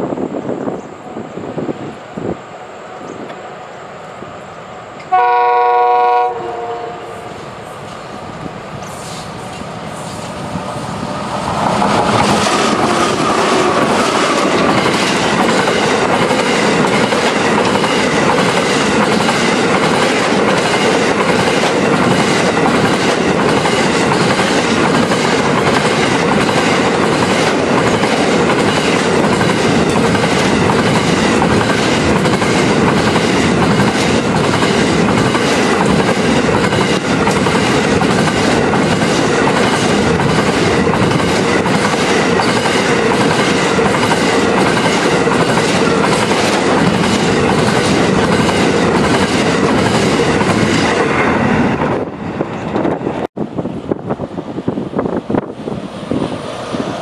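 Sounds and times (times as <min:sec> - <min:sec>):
diesel locomotive passing: 0:00.0 - 0:57.0
train wheels on rails: 0:00.0 - 0:57.0
clickety-clack over rail joints: 0:08.8 - 0:53.3.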